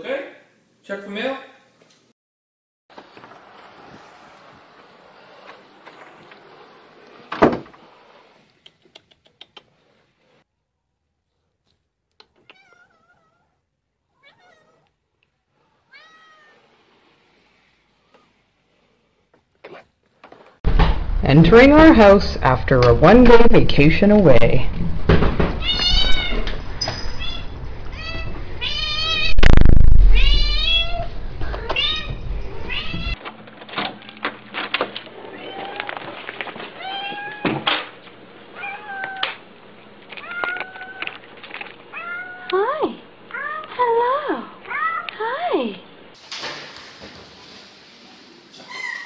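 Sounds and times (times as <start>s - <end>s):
cat meowing: 12.3s - 15.0s, 15.7s - 16.7s, 25.6s - 26.5s, 27.2s - 29.4s, 30.1s - 33.2s, 38.6s - 39.3s
loud low bump: 20.6s - 23.5s, 29.3s - 31.4s.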